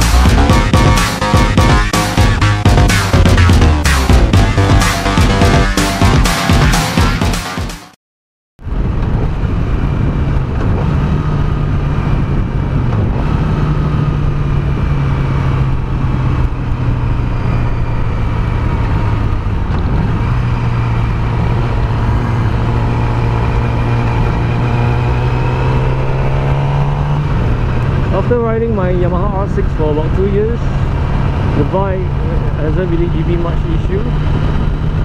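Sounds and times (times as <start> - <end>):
motorcycle engine cruising: 0.0 - 7.3, 8.6 - 35.0
wind and road noise: 8.6 - 35.0.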